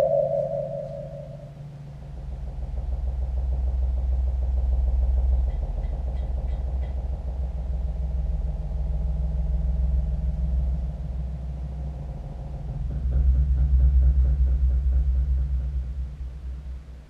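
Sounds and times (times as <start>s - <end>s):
faint high blips: 0.0s - 1.6s
deep electronic drone: 0.0s - 17.0s.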